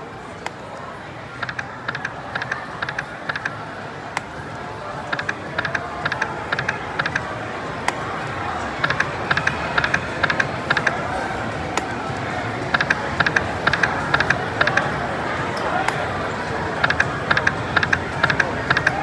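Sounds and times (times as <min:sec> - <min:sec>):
steady background din: 0:00.0 - 0:19.0
slot machine reels clicking: 0:01.4 - 0:03.6, 0:05.1 - 0:07.3, 0:08.8 - 0:11.0, 0:12.7 - 0:14.9, 0:16.7 - 0:19.0.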